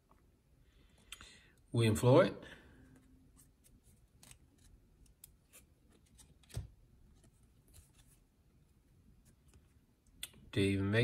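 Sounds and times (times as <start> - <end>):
trading cards scraping and flicking: 3.3 - 8.3.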